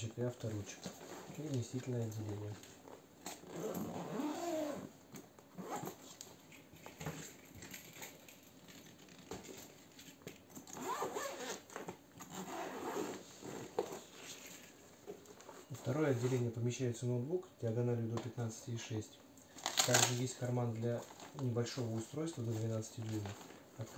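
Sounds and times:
zipper rasping open: 0:03.3 - 0:04.9, 0:05.5 - 0:06.1, 0:10.6 - 0:14.1.

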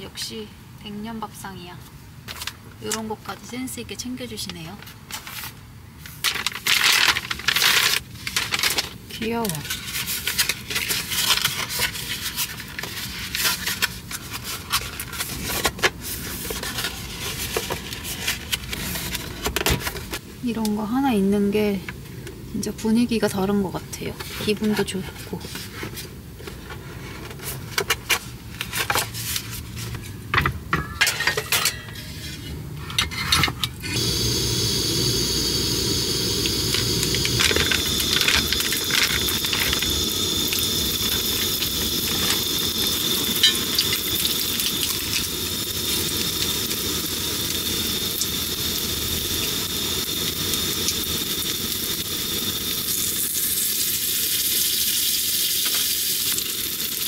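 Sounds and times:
food sizzling: 0:33.9 - 0:57.0.

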